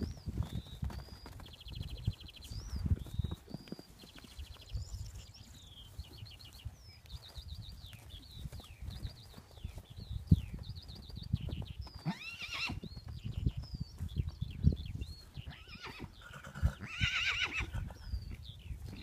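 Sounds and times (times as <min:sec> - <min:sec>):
hooves thudding on turf: 0:00.0 - 0:16.8
small birds chirping: 0:00.0 - 0:19.0
horses whinnying: 0:12.0 - 0:12.9, 0:15.4 - 0:18.0.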